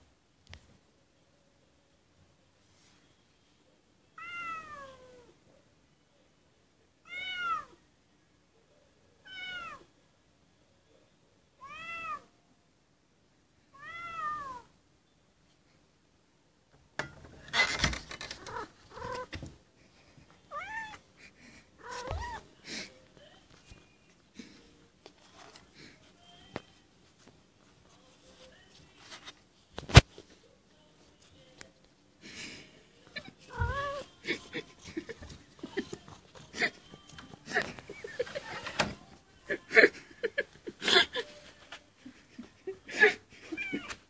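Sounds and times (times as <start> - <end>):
knocks and scrapes: 17.0 - 19.6.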